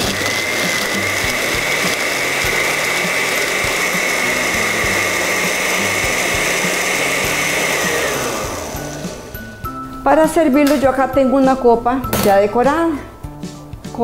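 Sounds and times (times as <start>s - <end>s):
blender motor whining: 0.0s - 9.7s.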